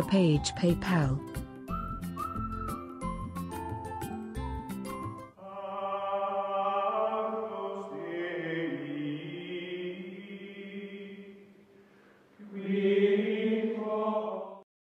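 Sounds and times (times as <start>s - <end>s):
choir-like chanted chords: 5.4s - 11.4s, 12.4s - 14.6s.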